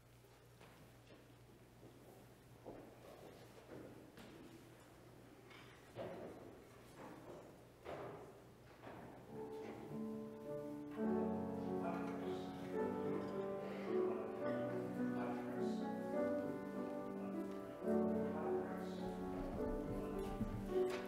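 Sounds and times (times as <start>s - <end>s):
slow keyboard chords: 9.4s - 21.0s.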